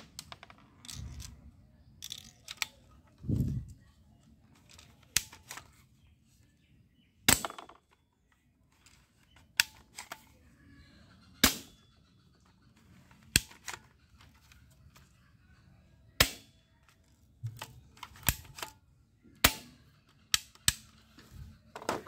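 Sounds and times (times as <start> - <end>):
toy rifle spring clacks: 2.0 - 3.0, 12.7 - 14.5, 16.2 - 18.8, 19.4 - 21.1.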